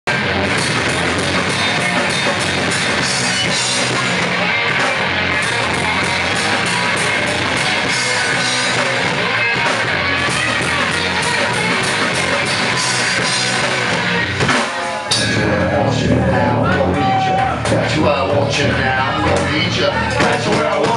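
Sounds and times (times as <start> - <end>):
punk rock band playing live: 0.0 - 20.9.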